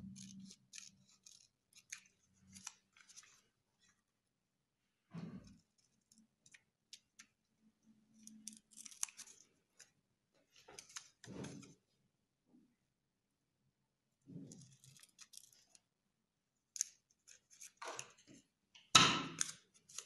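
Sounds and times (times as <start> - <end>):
scissors snipping paper: 0.0 - 3.4, 5.6 - 10.0, 10.7 - 11.7, 14.5 - 15.8, 16.7 - 18.2, 19.3 - 20.0
paper rustling: 0.0 - 4.1, 8.2 - 11.9, 16.8 - 18.5, 19.4 - 20.0.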